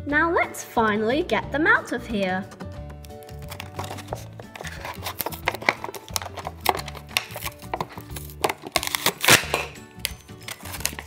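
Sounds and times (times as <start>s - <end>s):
background music: 0.0s - 11.0s
plastic packaging clicking and crinkling: 3.0s - 11.0s.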